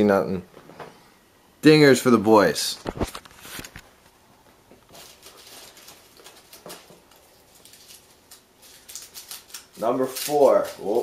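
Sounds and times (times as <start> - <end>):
crumpled paper rustling: 4.8 - 11.0.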